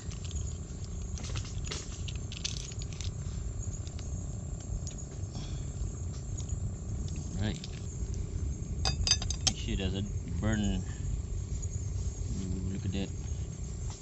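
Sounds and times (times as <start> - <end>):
low steady rumble: 0.0 - 14.0.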